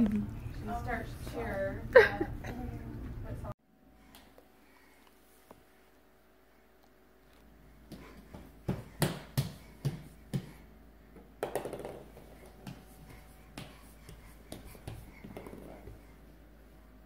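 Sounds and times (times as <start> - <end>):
palms slapping laminate floor: 7.8 - 10.6, 11.4 - 16.1.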